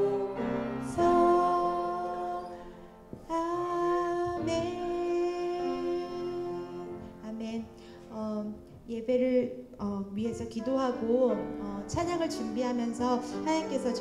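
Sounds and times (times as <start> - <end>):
church music with held chords: 0.0 - 8.0.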